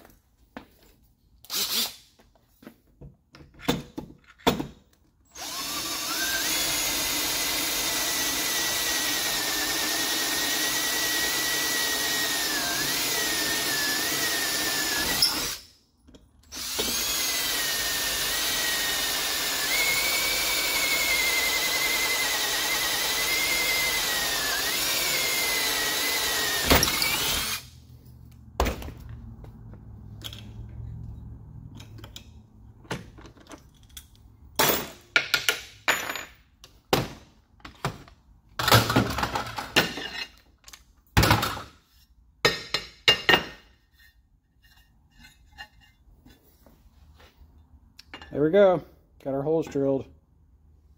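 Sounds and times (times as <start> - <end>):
drill press whining: 5.3 - 15.6, 16.4 - 27.7.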